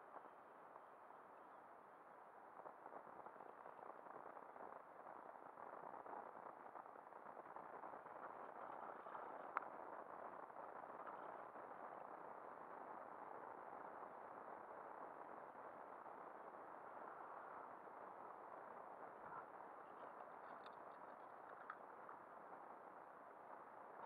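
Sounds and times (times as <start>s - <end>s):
wind: 0.0s - 24.0s
faint ticks: 9.0s - 10.4s, 20.4s - 22.3s.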